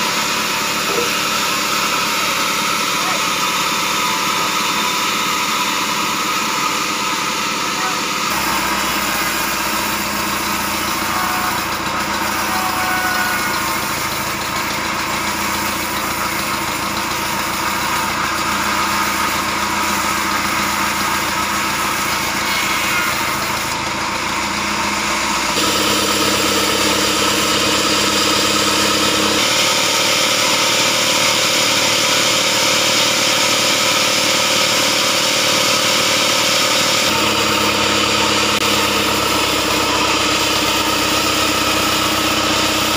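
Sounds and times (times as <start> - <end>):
band sawmill drone: 0.0 - 42.9.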